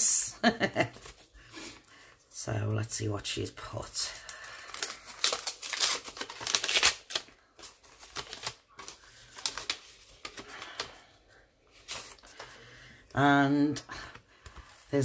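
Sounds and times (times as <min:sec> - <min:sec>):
paper rustling: 0:04.3 - 0:11.0, 0:11.7 - 0:12.7
paper envelope being torn open: 0:04.4 - 0:10.4.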